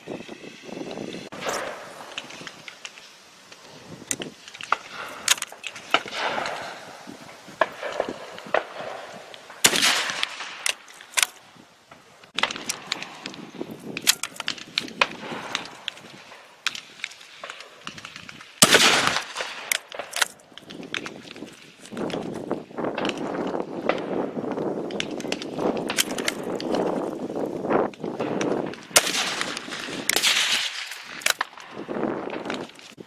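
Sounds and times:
rifle shots: 0:07.6 - 0:11.3, 0:14.0 - 0:21.1, 0:28.9 - 0:31.7
rifle bolt action clicks: 0:14.0 - 0:14.9.

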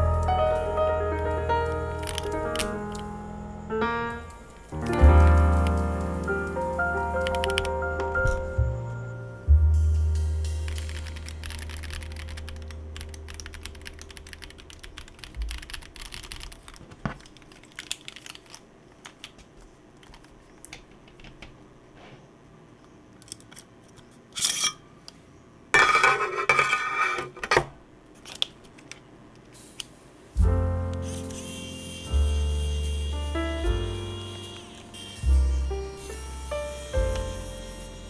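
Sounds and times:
mechanical keyboard key clacks: 0:07.2 - 0:07.8, 0:10.7 - 0:19.4.

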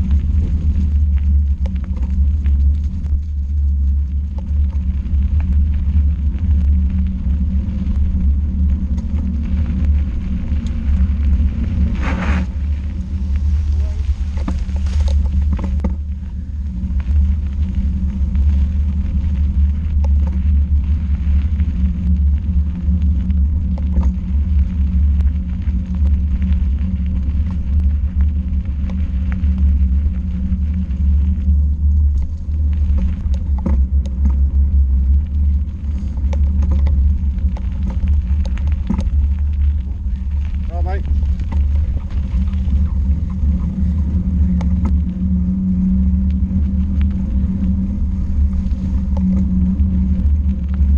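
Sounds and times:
tyre rumble: 0:00.0 - 0:50.9
wind buffeting: 0:00.0 - 0:50.9
bike clicks and rattles: 0:13.2 - 0:16.4, 0:23.6 - 0:24.2, 0:32.0 - 0:34.5, 0:35.4 - 0:45.0.

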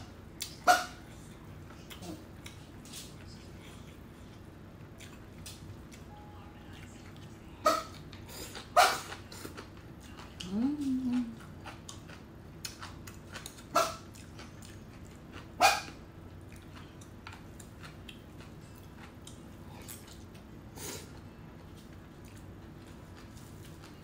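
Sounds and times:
dog barking: 0:00.6 - 0:01.0, 0:07.6 - 0:08.0, 0:08.8 - 0:09.1, 0:13.7 - 0:14.0, 0:15.6 - 0:16.0.

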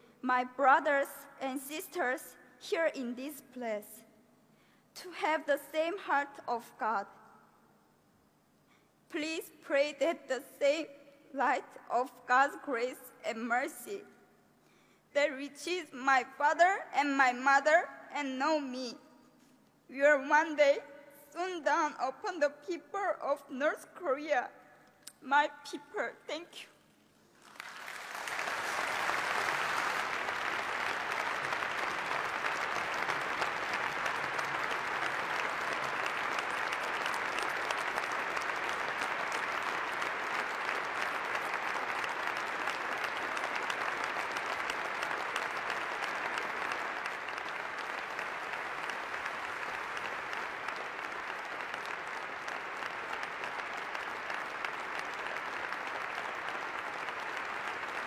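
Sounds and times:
audience applauding: 0:27.4 - 0:58.0.

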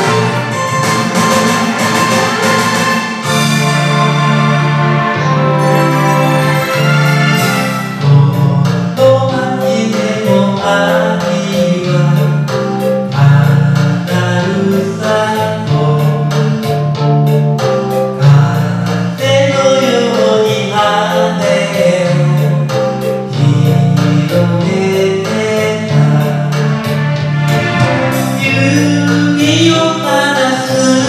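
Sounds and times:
steady drum beat: 0:00.0 - 0:04.5, 0:21.8 - 0:30.1
pop ballad backing track: 0:00.0 - 0:31.0
man singing: 0:08.0 - 0:17.2, 0:18.1 - 0:27.2, 0:28.3 - 0:31.0.

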